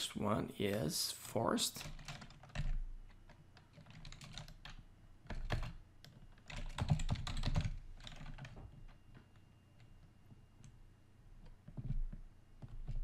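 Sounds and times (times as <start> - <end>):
typing on a computer keyboard: 1.8 - 10.0, 11.4 - 13.0.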